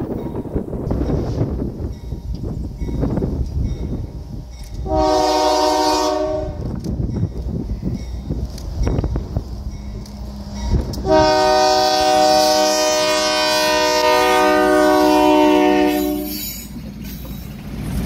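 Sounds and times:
rumble of approaching train: 0.0s - 18.0s
locomotive air horn blast: 4.8s - 6.7s, 11.0s - 16.5s.

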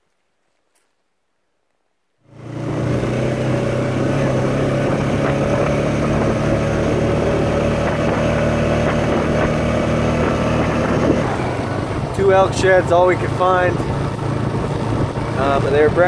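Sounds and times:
atv engine running: 2.3s - 16.0s
road and wind noise: 2.3s - 16.0s.

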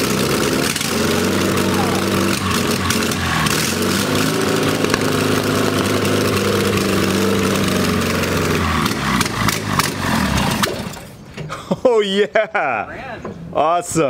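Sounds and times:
air-cooled engine running: 0.0s - 11.2s.

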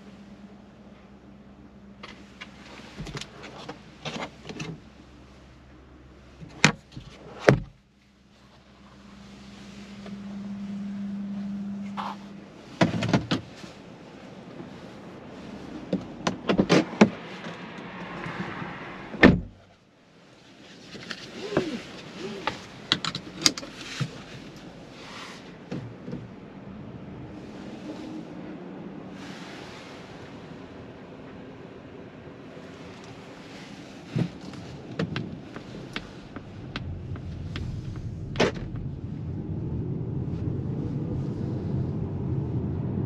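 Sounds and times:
outside noise: 0.0s - 43.0s
car interior trim clicks: 34.2s - 38.9s.

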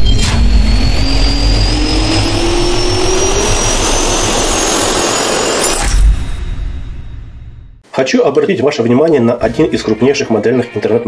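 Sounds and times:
jet engine spooling up: 0.0s - 7.4s.

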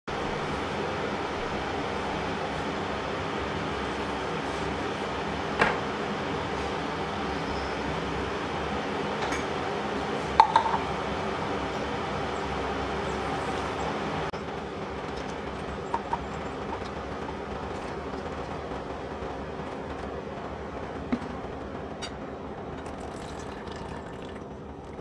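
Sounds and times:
kitchen appliance rumbling hiss: 0.1s - 14.3s.

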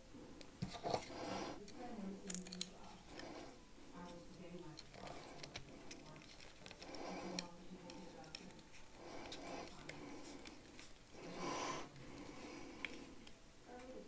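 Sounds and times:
soft handling rustles: 0.4s - 14.0s
screwdriver clicks and scrapes: 0.7s - 3.3s, 4.0s - 11.0s.

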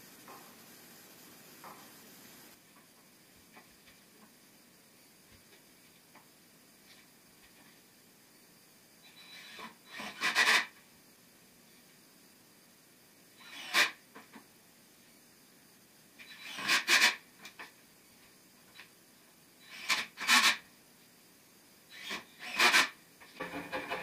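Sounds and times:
cordless drill driving screws: 13.4s - 13.9s, 16.2s - 17.1s, 21.9s - 22.9s.

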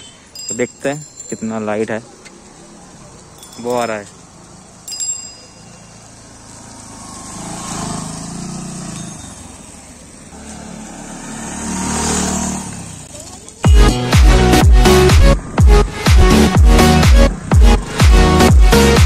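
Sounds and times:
motorcycle engine passing: 4.2s - 13.7s.

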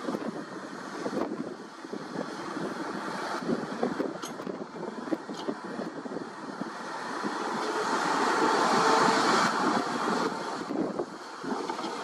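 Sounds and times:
excavator with vibratory pile hammer: 2.9s - 12.0s.

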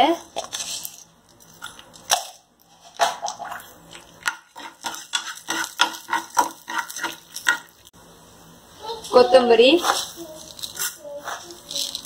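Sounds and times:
dry lentils rattling: 9.9s - 12.0s.

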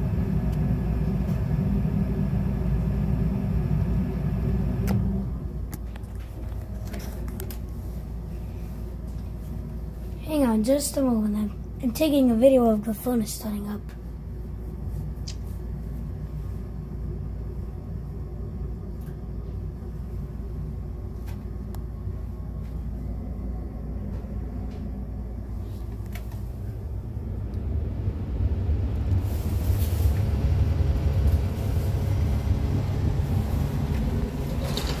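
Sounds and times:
furnace humming: 0.0s - 35.0s
rushing air: 25.5s - 35.0s.

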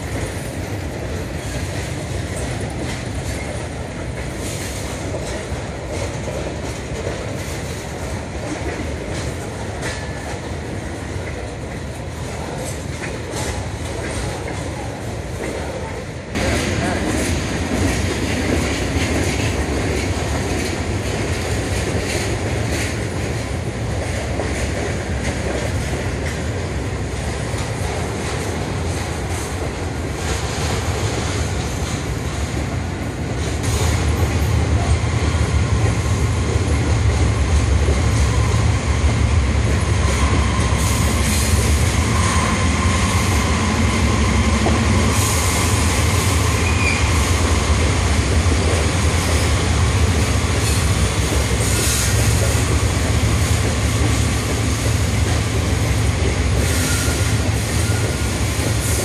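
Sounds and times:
train wheels rumbling on rail: 0.0s - 59.0s
wheel squeals: 56.6s - 58.4s.

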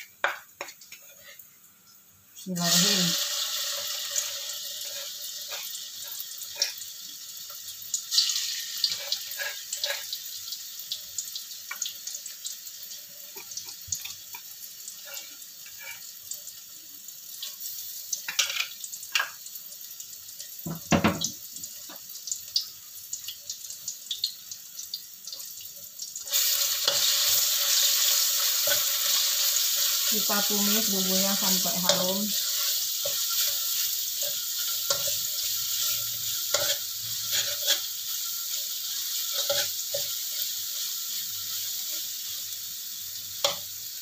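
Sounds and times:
spice paste sizzling in oil: 0.0s - 44.0s.

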